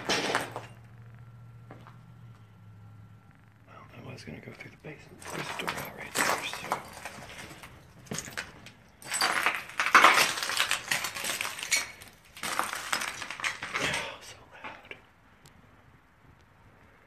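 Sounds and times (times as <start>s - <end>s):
footsteps crunching on rubble: 0.0s - 0.8s, 1.6s - 2.4s, 5.1s - 14.2s
loose debris clinking: 5.1s - 14.3s.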